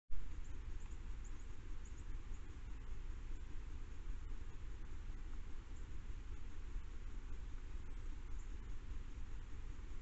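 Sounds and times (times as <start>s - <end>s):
low rumble and hiss: 0.1s - 10.0s
faint high chirps: 0.2s - 10.0s.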